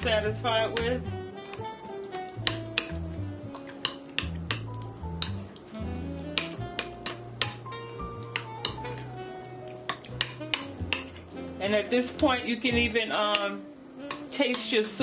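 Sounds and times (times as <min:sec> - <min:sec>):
wet mixing noise: 0:00.0 - 0:15.0
metal utensil clinking on glass: 0:09.9 - 0:11.2.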